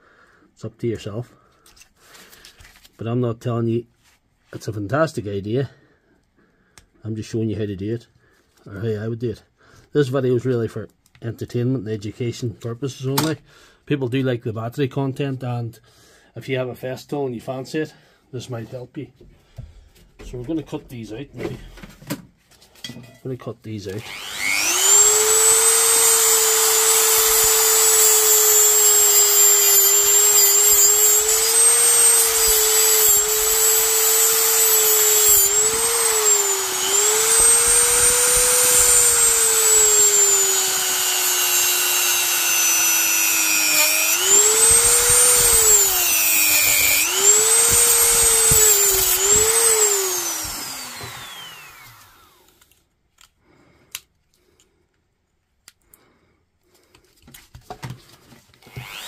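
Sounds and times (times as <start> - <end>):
rotary tool cutting metal: 24.0 - 52.6, 58.7 - 59.0.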